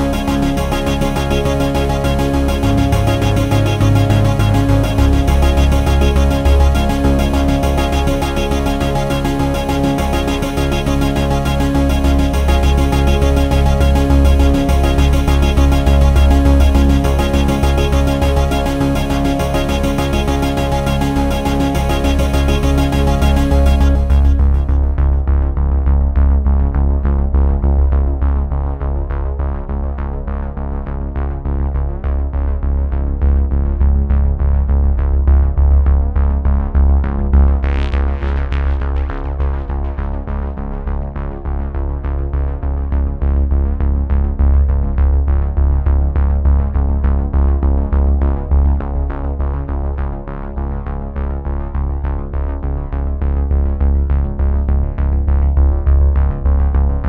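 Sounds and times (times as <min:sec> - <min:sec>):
synthesizer music with bass beat: 0:00.0 - 0:30.0, 0:31.3 - 0:57.0.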